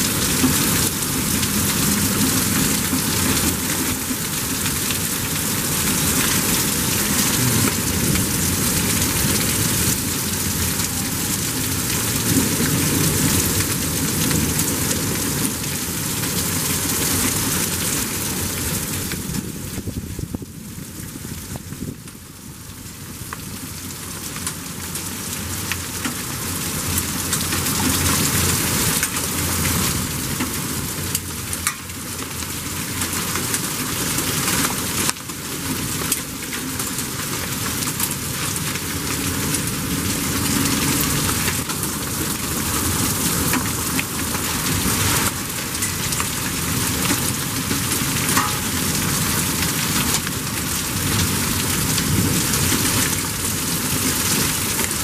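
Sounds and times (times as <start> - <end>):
hailstones and drops ticking: 0.0 - 19.8, 23.1 - 55.0
heavy rain hiss: 0.0 - 20.0.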